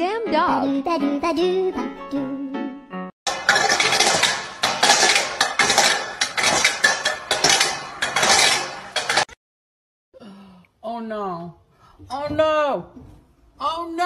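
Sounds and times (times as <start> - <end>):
metal bowl scraping on bricks: 3.3 - 9.4.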